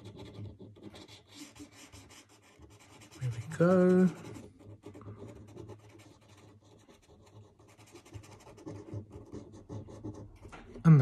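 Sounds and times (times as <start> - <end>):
felt-tip pen scratching on paper: 0.0 - 11.0.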